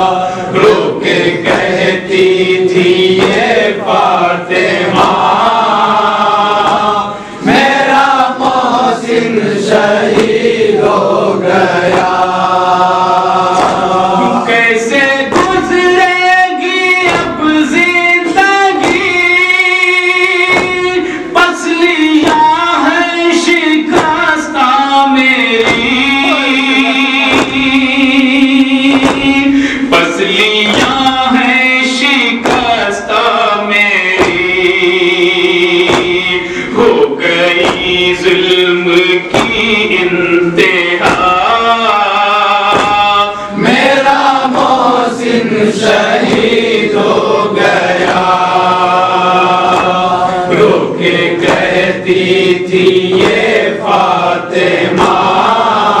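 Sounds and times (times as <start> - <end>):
man singing a lament: 0.0 - 56.0
men chanting in chorus: 0.0 - 56.0
chest-beating slaps: 0.5 - 16.1, 16.7 - 19.6, 20.3 - 21.6, 22.2 - 23.1, 23.9 - 24.4, 25.2 - 33.0, 33.7 - 55.8
sharp chest slaps: 4.9 - 5.4, 6.6 - 6.9, 13.5 - 14.0, 15.3 - 15.6, 18.8 - 19.2, 20.5 - 20.9, 27.2 - 27.7, 28.9 - 29.7, 30.7 - 31.1, 32.4 - 32.8, 34.2 - 34.6, 35.8 - 36.4, 37.6 - 38.4, 39.3 - 39.7, 41.0 - 41.5, 42.7 - 43.3, 49.7 - 50.0, 53.1 - 53.6, 54.9 - 55.4.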